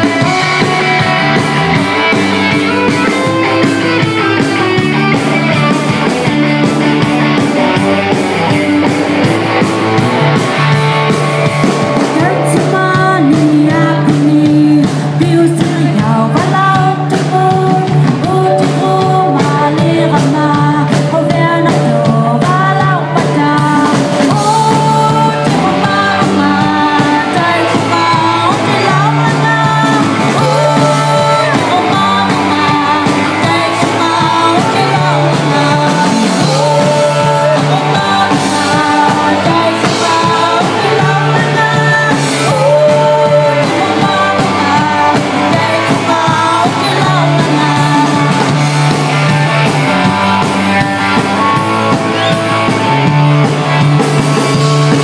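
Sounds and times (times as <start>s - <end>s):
drum kit: 0.0s - 55.0s
electric guitar: 0.0s - 55.0s
woman singing into microphone: 12.0s - 48.7s.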